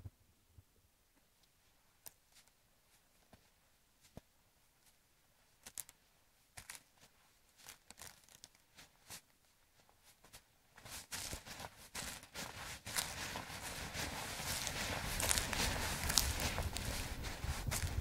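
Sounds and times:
footsteps through grass: 6.6s - 18.0s.

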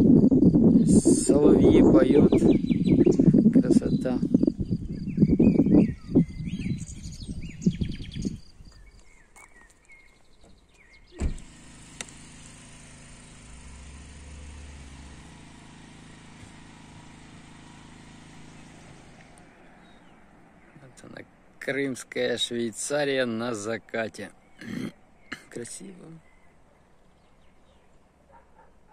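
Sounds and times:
nightingales singing: 0.0s - 11.2s
thump: 11.2s - 11.5s.

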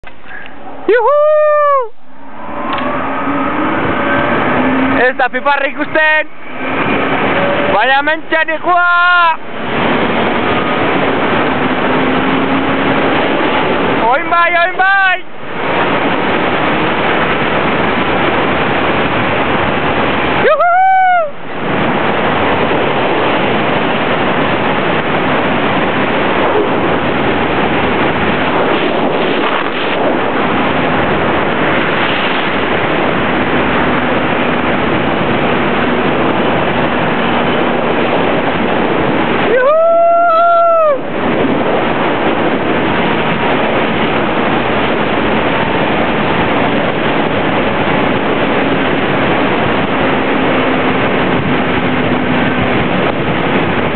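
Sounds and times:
wind rushing over microphone: 0.0s - 53.9s
person whooping: 0.3s - 2.0s, 20.4s - 21.4s, 39.5s - 41.1s.

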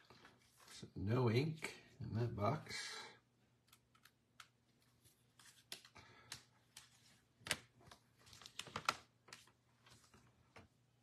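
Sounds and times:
cards and wrappers rustling: 3.7s - 10.6s.

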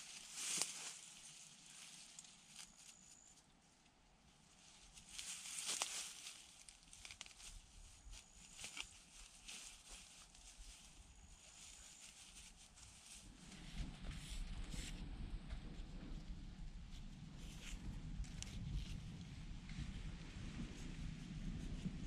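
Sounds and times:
grass rustling: 0.0s - 3.4s, 4.5s - 14.9s
thin high whistle-like tone: 2.2s - 3.5s, 7.9s - 9.0s.

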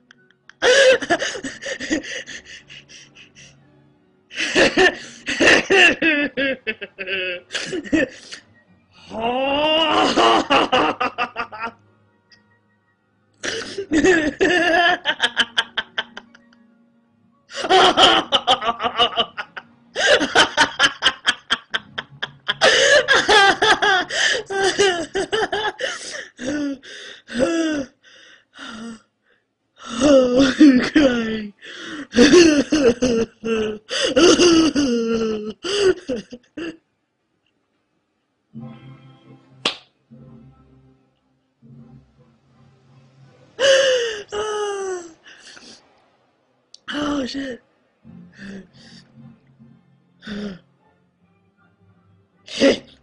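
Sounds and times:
woman laughing hard: 4.4s - 8.2s, 9.9s - 11.8s, 13.5s - 16.4s, 17.5s - 26.7s, 32.1s - 35.0s.

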